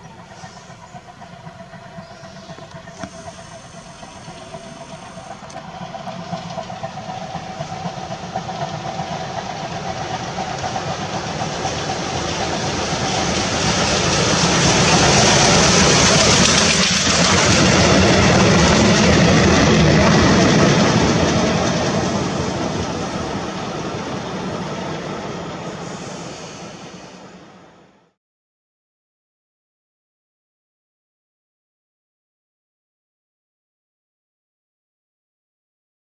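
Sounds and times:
train coaches rolling by: 0.0s - 28.0s
steam locomotive passing: 0.0s - 28.2s.

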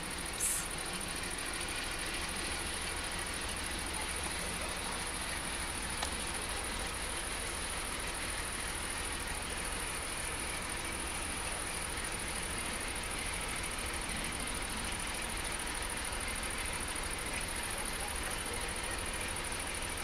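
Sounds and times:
distant diesel locomotive rumble: 0.0s - 20.0s
faint click: 6.0s - 6.2s.

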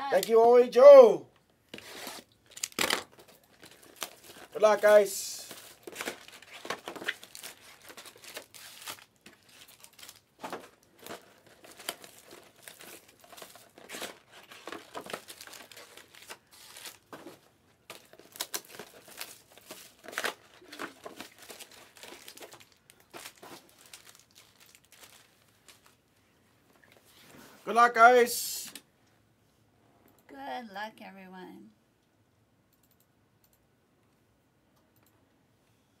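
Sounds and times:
cellophane crinkling and tearing: 1.7s - 26.0s.

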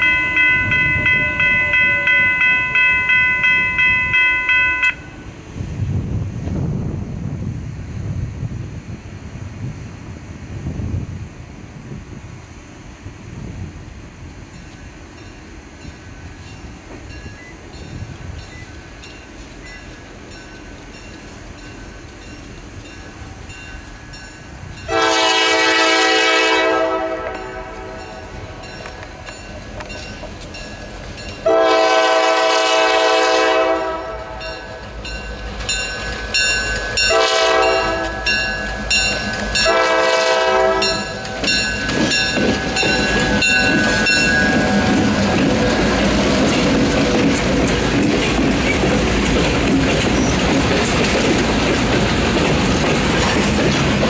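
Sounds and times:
crossing bell ringing: 0.0s - 5.4s, 14.6s - 48.9s
train wheel noise: 0.0s - 54.0s
locomotive engine rumble: 5.2s - 54.0s
locomotive air horn blasts: 24.9s - 28.6s, 31.4s - 34.6s, 37.1s - 38.5s, 39.6s - 41.2s.

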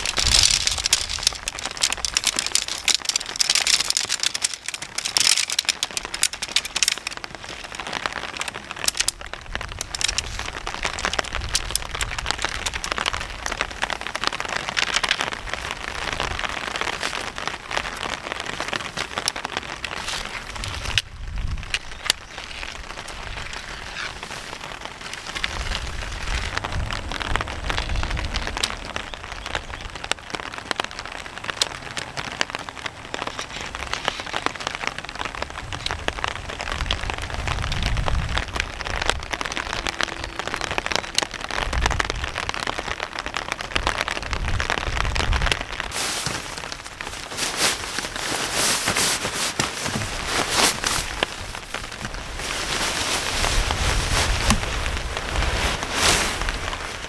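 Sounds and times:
rustling bursts: 0.0s - 29.0s, 43.8s - 57.0s
rain on paving stones: 0.0s - 57.0s.

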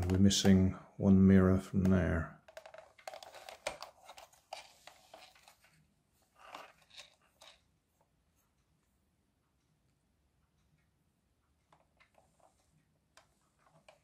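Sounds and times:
plastic toy clicks and scrapes: 2.5s - 5.7s, 6.4s - 7.6s.

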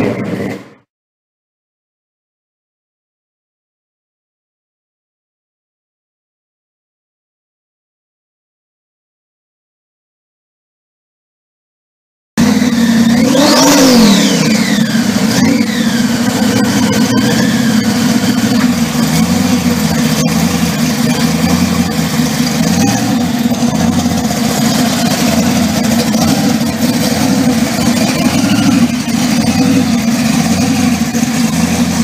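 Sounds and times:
car engine revving and idling: 0.0s - 0.9s, 12.4s - 32.0s.

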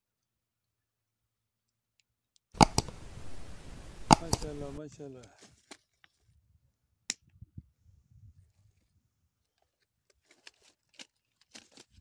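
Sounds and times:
faint low rumble: 2.6s - 4.8s
fish shifted on plastic sheet: 8.6s - 12.0s.

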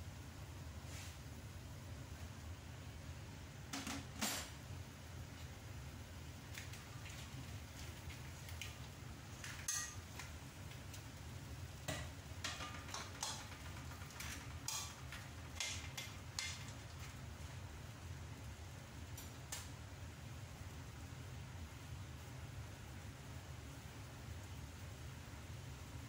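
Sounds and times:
cookware clinking and knocking: 9.4s - 10.0s, 11.9s - 16.8s.

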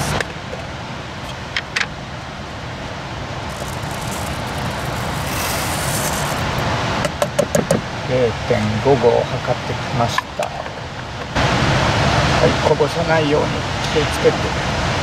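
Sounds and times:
dry rice pouring into pot: 3.5s - 6.6s.

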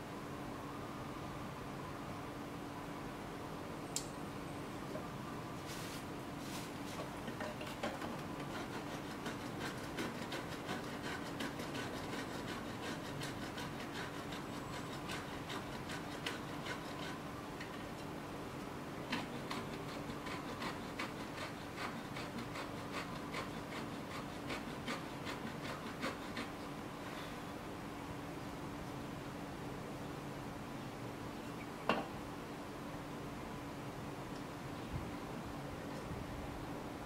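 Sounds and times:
metal blade scraping wood: 8.4s - 17.8s.

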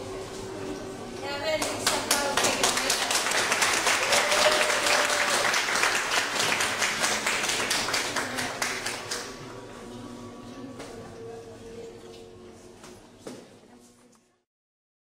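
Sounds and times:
audience applauding: 1.8s - 9.4s.

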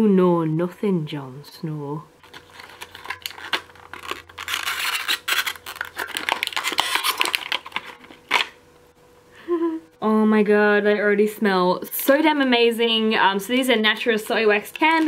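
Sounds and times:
blister pack tearing: 2.2s - 8.6s, 14.4s - 15.0s.

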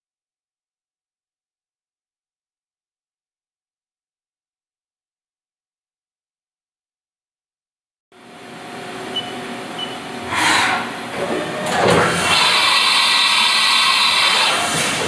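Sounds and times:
machine whine: 8.2s - 15.0s.

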